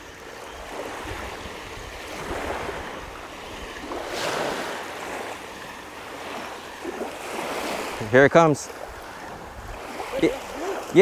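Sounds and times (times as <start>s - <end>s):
wind rumble on microphone: 0.0s - 5.3s, 8.8s - 10.9s
small waves washing onto shore: 0.0s - 11.0s.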